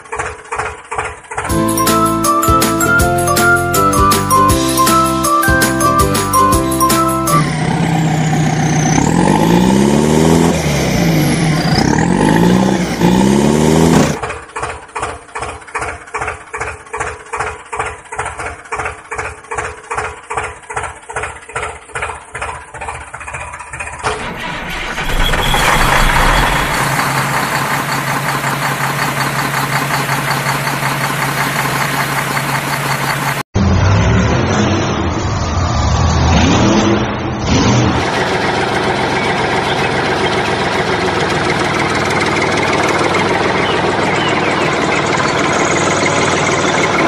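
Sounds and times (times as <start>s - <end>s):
engine chugging: 0.0s - 33.5s, 38.0s - 47.0s
engine revving sweeps: 3.8s - 14.3s, 24.0s - 47.0s
engine running steadily: 6.8s - 33.5s, 38.0s - 47.0s.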